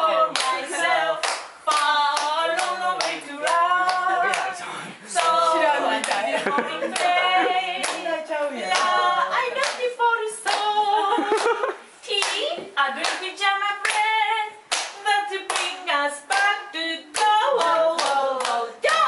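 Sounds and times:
voices singing together: 0.0s - 19.0s
hands clapping: 1.2s - 4.5s, 6.0s - 6.3s, 7.8s - 8.0s, 14.7s - 16.6s, 17.2s - 19.0s.

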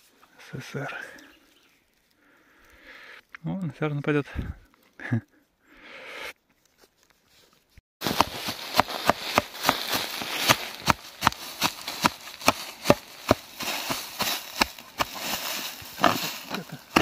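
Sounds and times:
footsteps crunching on forest floor: 6.6s - 17.0s.

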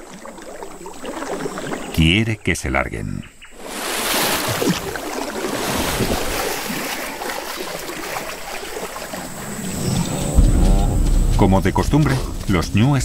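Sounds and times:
water churning and sloshing: 0.0s - 2.0s, 3.5s - 13.0s
sharp splash: 3.6s - 13.0s.

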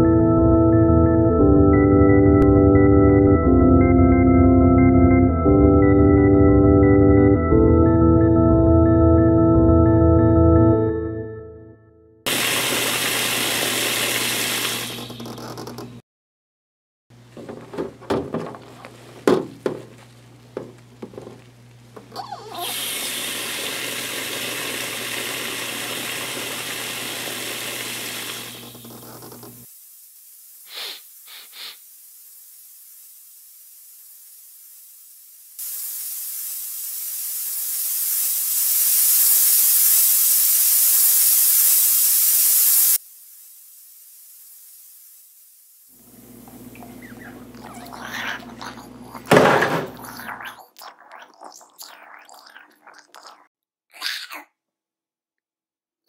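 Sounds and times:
gas leak hissing: 12.3s - 15.9s, 17.2s - 53.3s
rustling: 17.2s - 22.2s
water sloshing in sink: 17.3s - 23.3s, 46.4s - 53.4s
sharp knock: 19.2s - 19.9s.

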